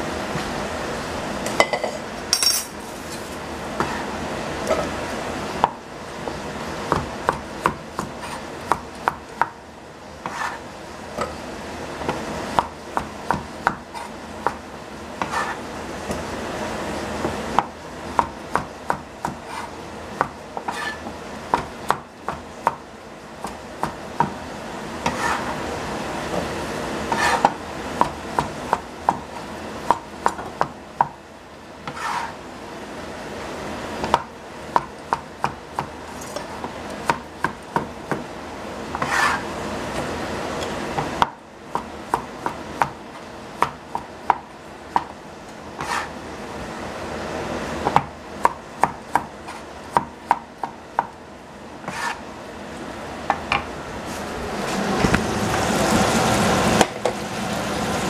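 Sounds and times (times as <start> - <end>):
knife chopping on plastic board: 17.2 - 22.8, 31.8 - 32.3, 34.0 - 36.0, 36.6 - 38.3, 43.6 - 45.2, 45.8 - 46.1, 47.8 - 51.1, 51.8 - 52.2.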